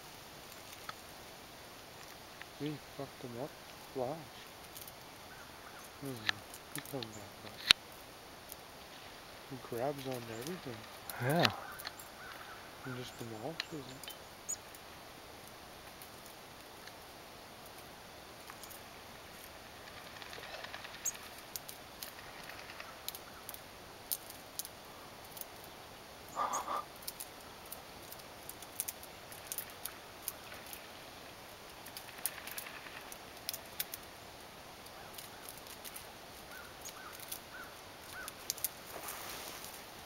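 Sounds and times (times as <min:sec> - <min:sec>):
bird pecking dry reed stems: 0:00.0 - 0:40.0.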